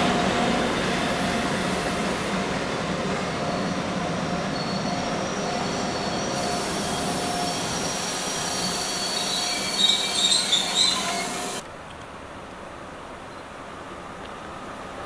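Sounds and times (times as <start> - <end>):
train coaches rolling on rails: 0.0 - 11.6
wheels squealing: 4.5 - 11.6.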